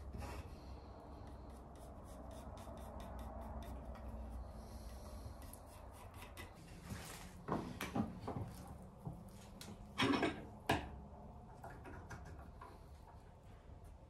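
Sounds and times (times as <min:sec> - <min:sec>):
steady low hum: 0:00.0 - 0:14.0
pencil scratching on wood: 0:01.1 - 0:06.9.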